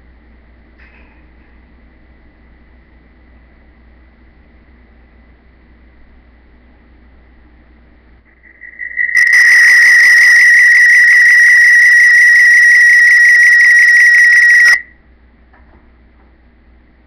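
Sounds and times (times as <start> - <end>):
shrill fluttering whistle: 8.3 - 14.9.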